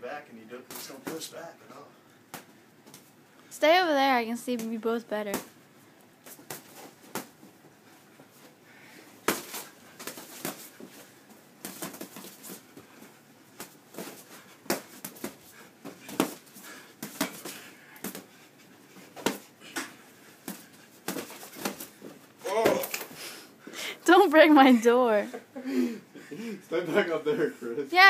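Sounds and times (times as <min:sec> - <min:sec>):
boxing glove punches landing: 0:09.2 - 0:10.7.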